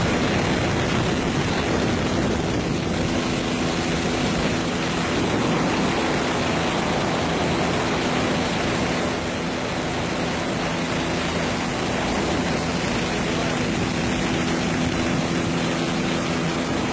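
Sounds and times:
aircraft propeller engine drone: 0.0s - 16.9s.

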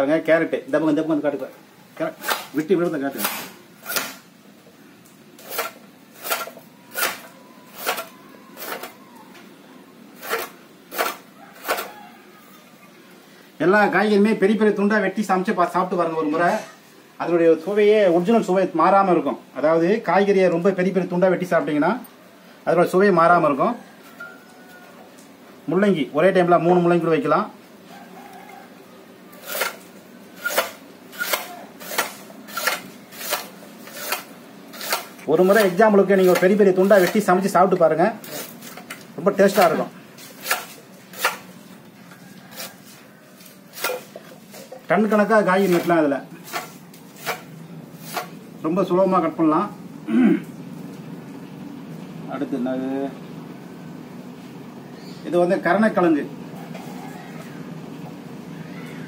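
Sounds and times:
vegetable cutter blade chopping: 2.2s - 4.2s, 5.4s - 8.9s, 10.2s - 11.9s, 29.4s - 29.8s, 30.4s - 37.3s, 39.5s - 41.5s, 43.7s - 44.2s, 45.6s - 48.4s.

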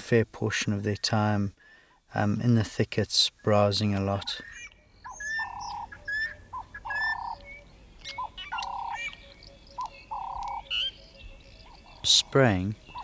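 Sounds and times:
wild birds chirping: 0.6s - 13.0s
buzzy bird call: 4.2s - 13.0s.

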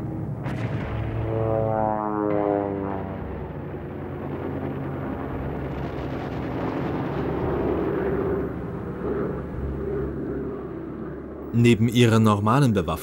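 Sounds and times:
aircraft engine drone: 0.0s - 13.0s
explosions: 0.4s - 7.9s.

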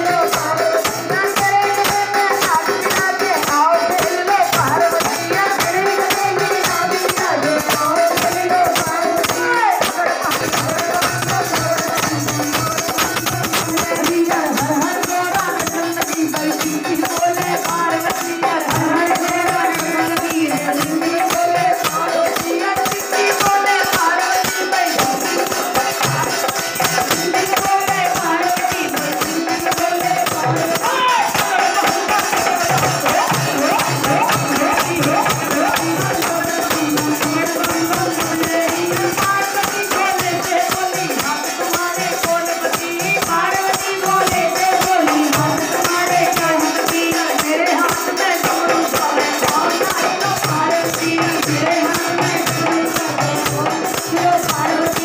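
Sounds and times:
dholak drum beat: 0.0s - 55.0s
jingling hand percussion: 0.0s - 55.0s
woman singing through loudspeaker: 0.0s - 55.0s.

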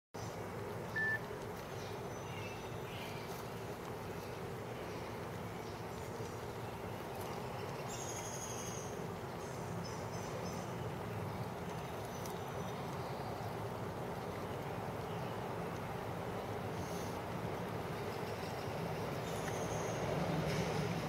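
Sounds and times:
short high beep: 1.0s - 1.2s.

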